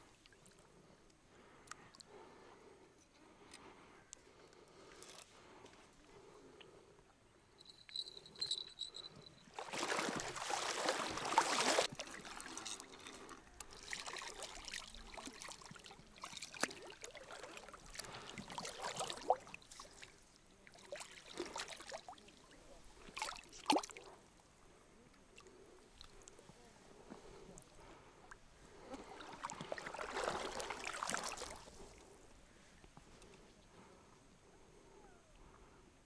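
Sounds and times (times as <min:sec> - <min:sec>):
fish splashing in water: 0:09.6 - 0:12.7, 0:29.0 - 0:31.8.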